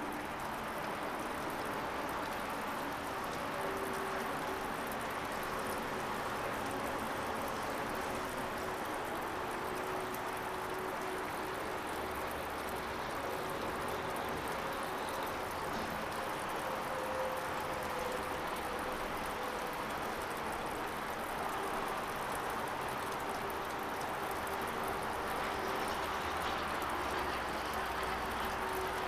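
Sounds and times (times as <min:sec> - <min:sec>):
rushing outdoor background noise: 0:00.0 - 0:29.0.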